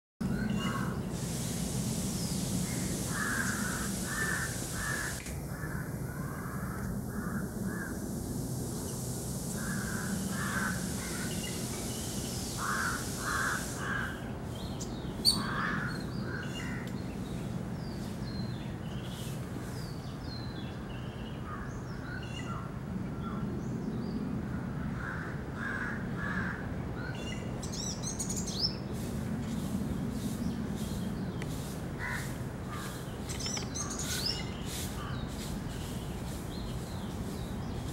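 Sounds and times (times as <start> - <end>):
birds calling in quick bursts: 0.4 - 5.2, 9.6 - 16.8, 30.1 - 37.9.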